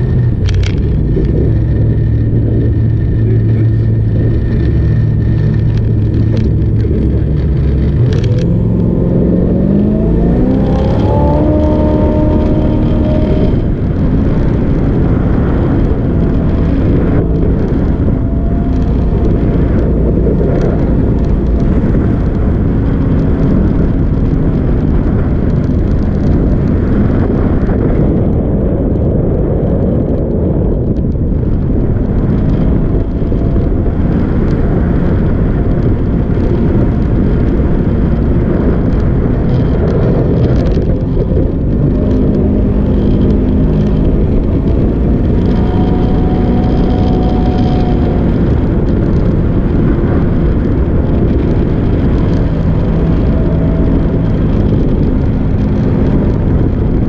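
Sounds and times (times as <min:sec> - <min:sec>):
boat engine running: 0:00.0 - 0:57.0
wind on microphone: 0:00.0 - 0:57.0.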